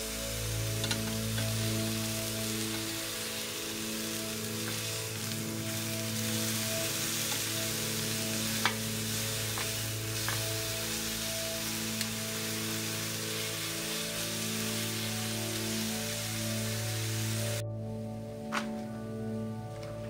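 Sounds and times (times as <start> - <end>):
chicken sizzling in a pan: 0.0 - 17.6
metal tongs clicking on pan: 0.8 - 1.6, 8.6 - 8.9, 9.5 - 10.6.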